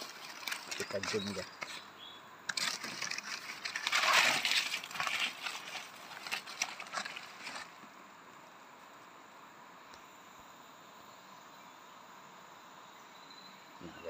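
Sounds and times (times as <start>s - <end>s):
leaves and undergrowth rustling: 0.0s - 9.2s.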